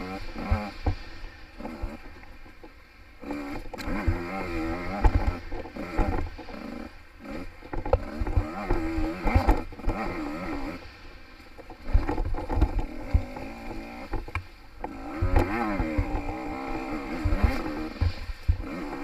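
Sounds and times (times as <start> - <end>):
dirt bike engine revving: 0.0 - 2.5, 3.2 - 11.1, 11.7 - 19.0
bike thumping over bumps: 3.2 - 10.8, 11.6 - 19.0.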